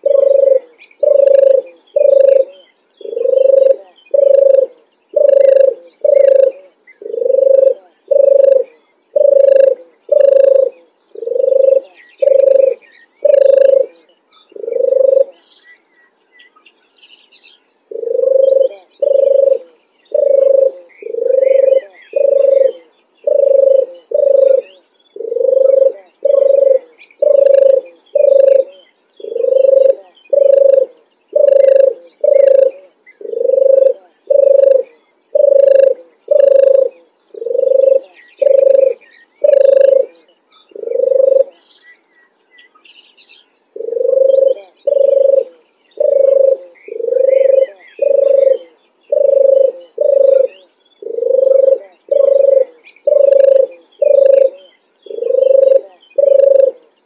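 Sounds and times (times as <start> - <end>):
dove cooing: 0.0 - 15.8, 17.5 - 42.4, 43.4 - 57.0
small birds chirping faintly: 0.0 - 57.0.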